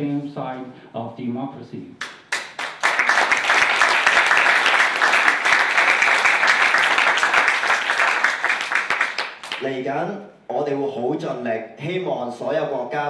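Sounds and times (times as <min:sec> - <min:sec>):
audience applauding: 0:02.0 - 0:09.7.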